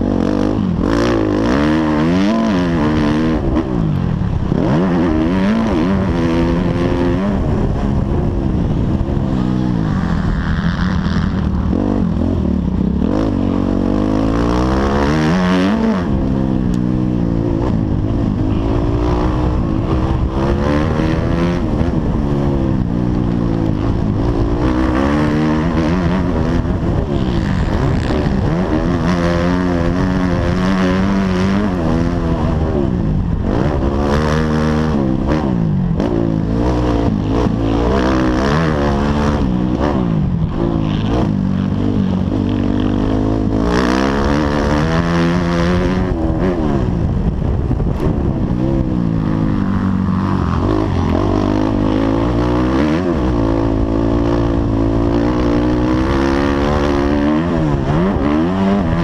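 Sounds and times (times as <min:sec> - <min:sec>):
motocross bike engine revving: 0:00.0 - 0:59.0.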